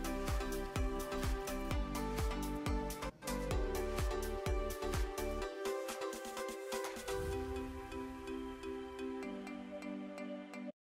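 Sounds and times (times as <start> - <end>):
soft instrumental music: 0.0 - 10.8.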